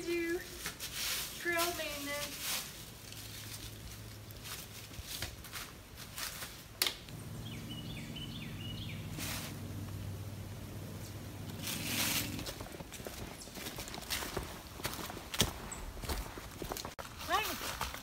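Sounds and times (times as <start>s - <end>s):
leaves rustling: 0.0s - 18.0s
footsteps crunching dry leaves: 0.1s - 7.4s, 8.0s - 10.1s, 11.1s - 18.0s
low hum: 7.1s - 13.2s.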